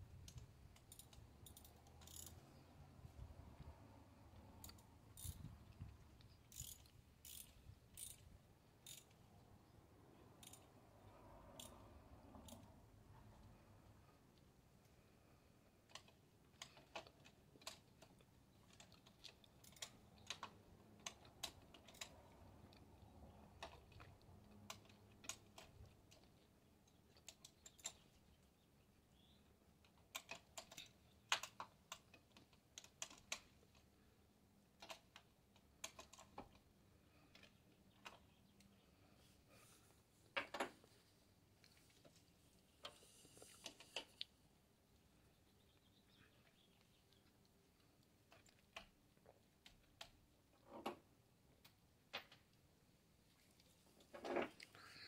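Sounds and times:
hand tools clicking and tapping: 0:00.2 - 0:02.4.

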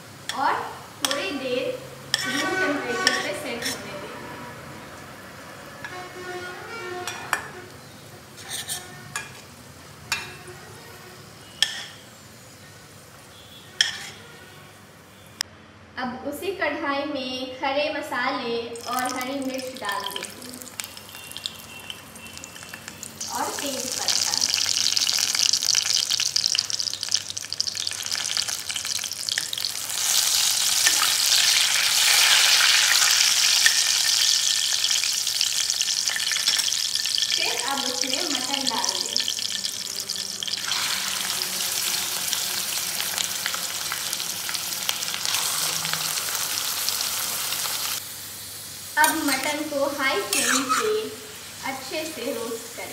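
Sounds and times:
oil sizzling: 0:00.0 - 0:03.9, 0:18.7 - 0:52.9
steel spoon stirring: 0:02.1 - 0:03.9, 0:08.4 - 0:09.4, 0:13.8 - 0:14.3
spoon scraping pan: 0:02.1 - 0:04.0, 0:05.8 - 0:09.5, 0:11.5 - 0:12.0, 0:13.8 - 0:14.4, 0:50.2 - 0:51.1.

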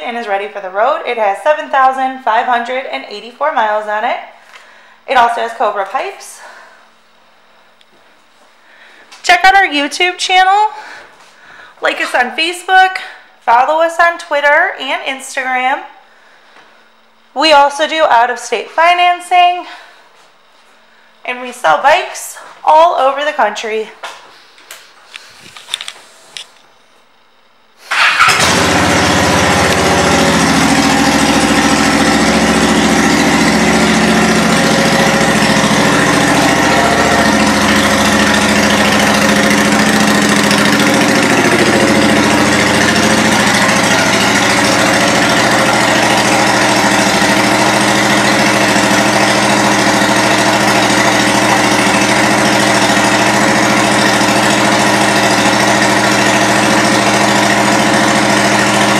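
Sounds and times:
motorcycle engine idling: 0:27.9 - 0:58.9.

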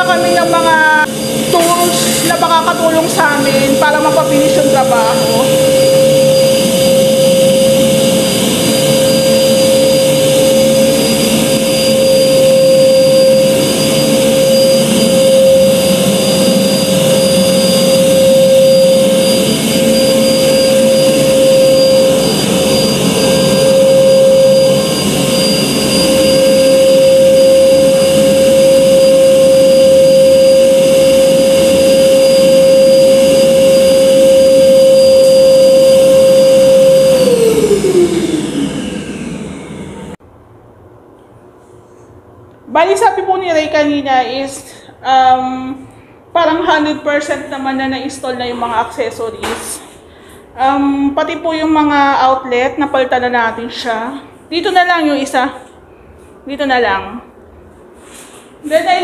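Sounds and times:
vacuum motor whine: 0:00.0 - 0:40.2.

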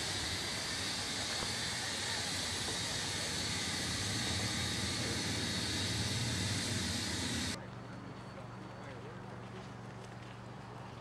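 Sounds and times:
low steady rumble: 0:00.0 - 0:07.6
steam hissing: 0:00.0 - 0:07.6.

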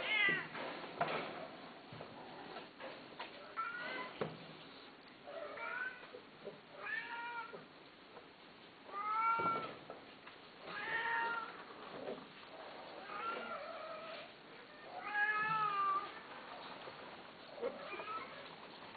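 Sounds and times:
cat meowing: 0:00.0 - 0:00.5, 0:12.9 - 0:16.2.

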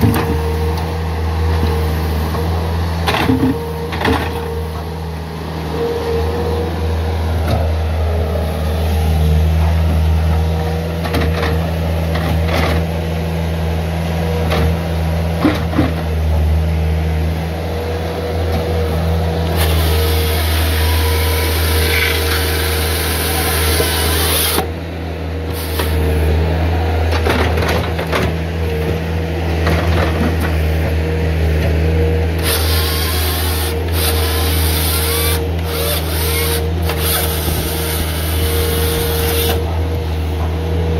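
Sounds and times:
diesel engine running: 0:00.0 - 0:40.9
hydraulic chain saw cutting log: 0:19.4 - 0:24.8, 0:25.5 - 0:26.3, 0:32.3 - 0:40.0.

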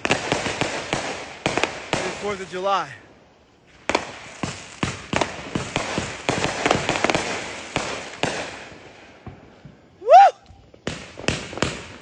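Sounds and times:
firework cracks and pops: 0:00.0 - 0:03.0, 0:03.7 - 0:12.0
firework bang: 0:03.8 - 0:09.8, 0:10.5 - 0:12.0.

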